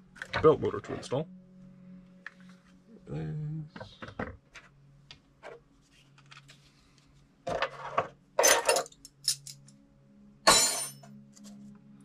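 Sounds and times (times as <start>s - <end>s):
scrape on workbench: 7.5s - 8.1s
tools clattering: 7.5s - 9.7s, 10.5s - 11.1s
metal wrenches clinking: 8.4s - 9.6s.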